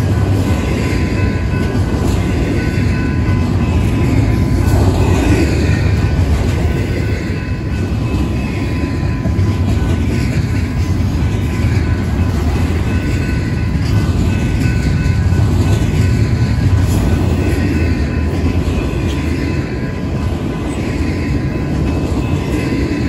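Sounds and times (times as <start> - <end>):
freight train rumbling past: 0.0 - 23.0.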